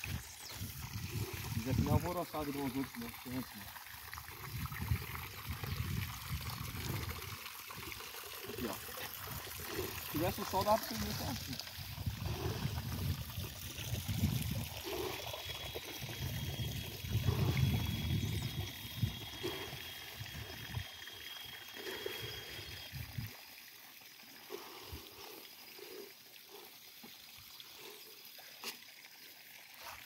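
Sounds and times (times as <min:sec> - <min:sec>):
wind noise on microphone: 0:00.0 - 0:02.1, 0:04.4 - 0:07.3, 0:11.8 - 0:14.8, 0:16.0 - 0:20.8, 0:22.9 - 0:23.3.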